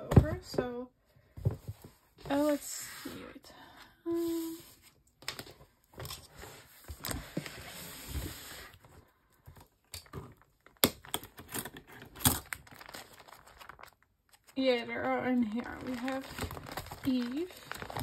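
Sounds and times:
plastic sleeve pages rustling: 5.2s - 18.0s.

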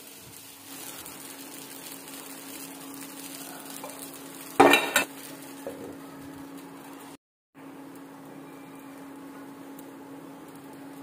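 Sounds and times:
batter sizzling in a pan: 0.0s - 11.0s
metal lid clattering on pan: 4.6s - 5.1s.

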